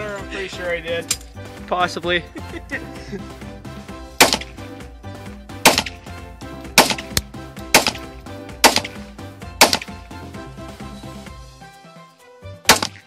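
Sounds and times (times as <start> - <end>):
background music: 0.0 - 13.0
pistol shots: 4.2 - 4.6, 5.6 - 6.0, 6.8 - 9.0, 9.6 - 10.0, 12.7 - 13.0.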